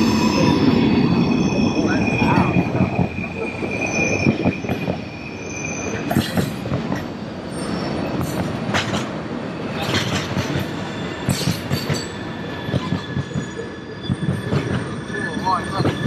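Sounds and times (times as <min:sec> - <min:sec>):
high wheel squeal: 0:00.0 - 0:08.4, 0:10.7 - 0:16.0
train wheels clattering over joints: 0:06.1 - 0:07.2, 0:08.1 - 0:15.0, 0:15.6 - 0:16.0.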